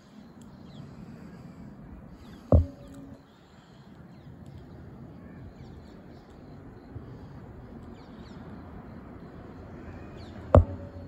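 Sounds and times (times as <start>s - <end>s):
outdoor background hum: 0.0s - 11.0s
sharp knock: 2.5s - 3.1s, 10.6s - 11.0s.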